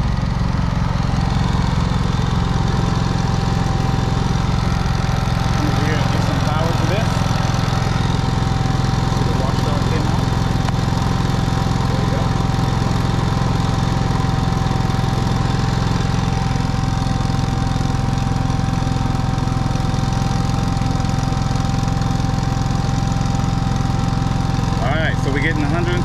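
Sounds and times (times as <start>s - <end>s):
steady high whine: 0.0s - 17.2s, 24.8s - 26.0s
generator engine running: 0.0s - 26.0s.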